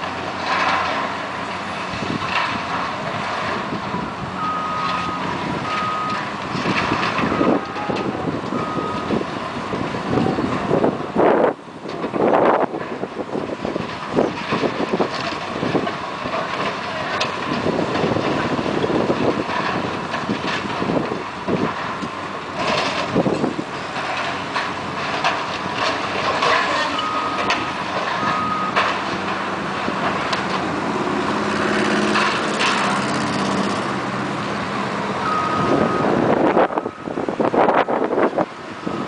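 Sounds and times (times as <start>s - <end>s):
excavator engines running: 0.0s - 39.0s
debris crunching and clattering: 13.4s - 34.0s.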